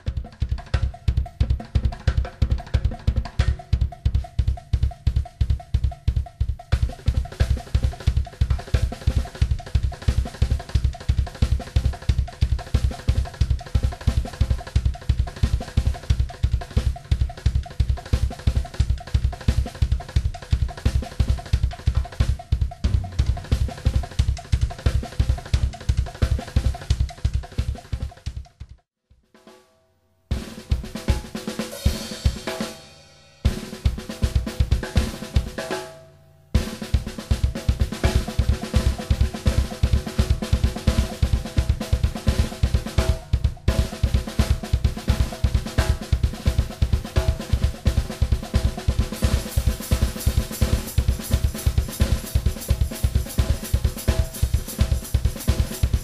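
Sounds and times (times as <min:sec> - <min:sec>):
bass drum pulse: 0:22.6 - 0:26.4
cymbals: 0:30.4 - 0:56.0.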